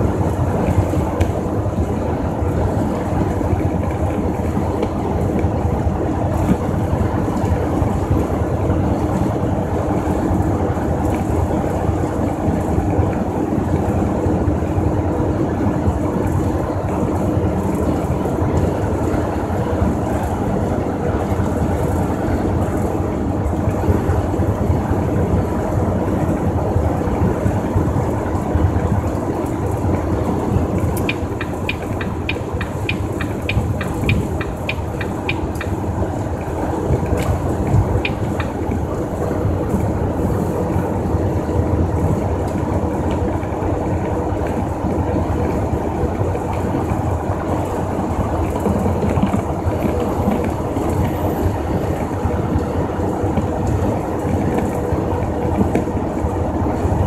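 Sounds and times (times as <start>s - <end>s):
road noise: 0.0s - 57.0s
truck engine drone: 0.0s - 57.0s.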